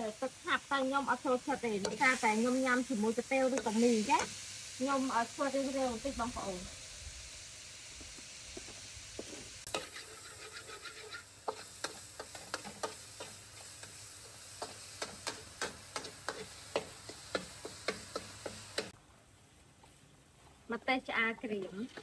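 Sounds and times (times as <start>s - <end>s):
garlic sizzling: 0.0s - 19.0s
metal spatula scraping wok: 9.6s - 19.0s.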